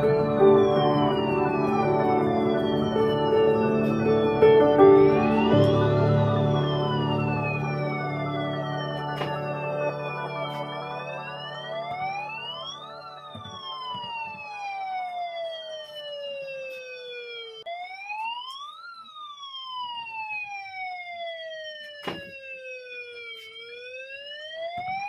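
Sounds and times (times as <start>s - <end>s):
electronic siren wailing: 0.0s - 25.0s.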